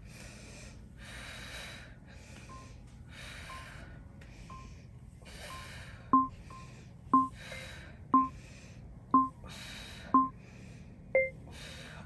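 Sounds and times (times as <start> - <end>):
person breathing heavily: 0.0 - 12.0
timer ticking: 6.2 - 6.6, 7.2 - 7.4.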